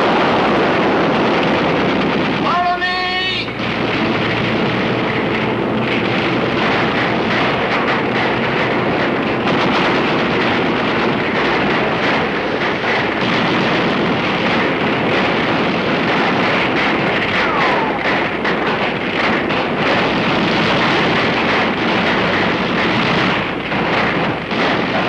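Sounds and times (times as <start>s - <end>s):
battlefield roar: 17.2s - 18.3s.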